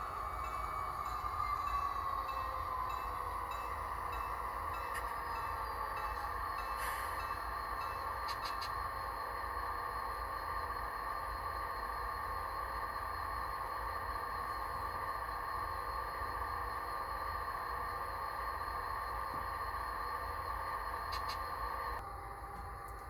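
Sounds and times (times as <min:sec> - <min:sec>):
diesel engine drone from small speaker: 0:08.3 - 0:23.0.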